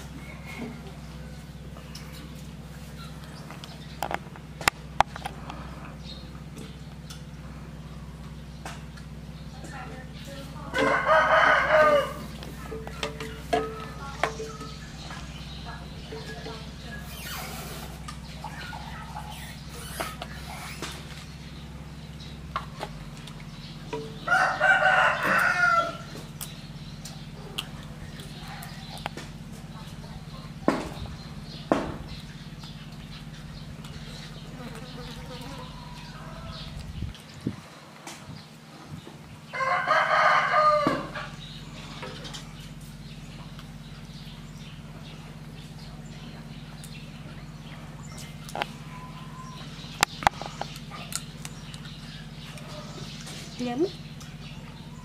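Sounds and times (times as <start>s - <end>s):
low hum: 0.0s - 55.0s
rooster crowing: 10.7s - 12.4s, 24.2s - 26.2s, 35.4s - 36.8s, 39.5s - 41.4s.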